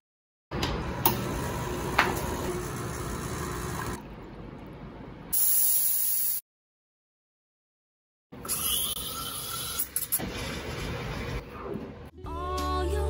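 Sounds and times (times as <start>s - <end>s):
espresso machine pump: 1.1s - 4.0s.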